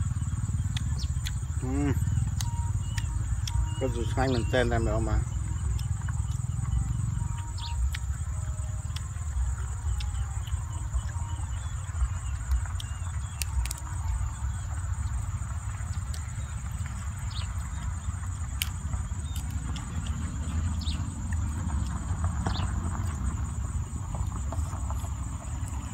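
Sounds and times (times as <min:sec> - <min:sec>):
high insect drone: 0:00.0 - 0:25.9
wind rumble on microphone: 0:04.4 - 0:25.9
chicken being torn and chewed: 0:12.4 - 0:14.1.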